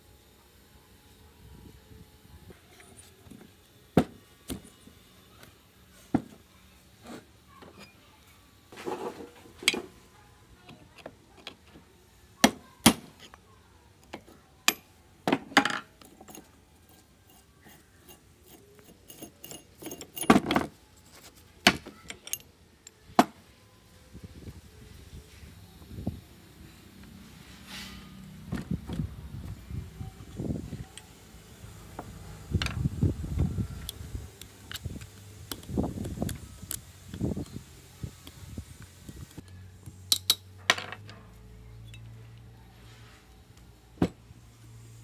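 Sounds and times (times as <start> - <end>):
metal parts clinking on workbench: 18.8 - 20.7.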